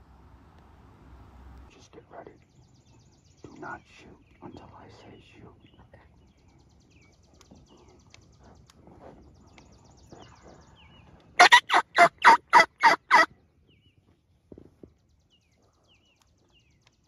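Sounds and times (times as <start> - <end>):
faint songbird chirps: 1.7 - 17.0
turkey yelping: 11.4 - 13.3.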